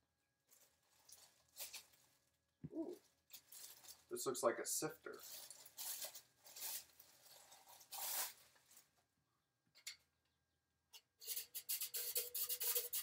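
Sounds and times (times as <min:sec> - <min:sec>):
plastic wrapping rustling: 0:00.4 - 0:04.3, 0:05.0 - 0:09.0
flour sifter crank rasping: 0:05.2 - 0:08.5, 0:11.2 - 0:13.0.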